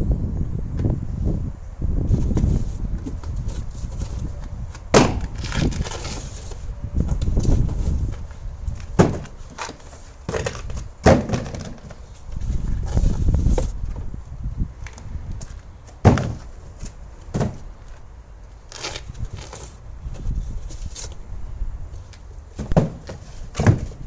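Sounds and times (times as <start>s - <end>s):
cardboard scuffing and rustling: 2.1s - 14.1s, 14.8s - 18.0s, 18.6s - 21.2s, 22.0s - 24.0s
cardboard boxes set down: 7.4s - 12.0s, 15.4s - 18.0s, 22.5s - 24.0s.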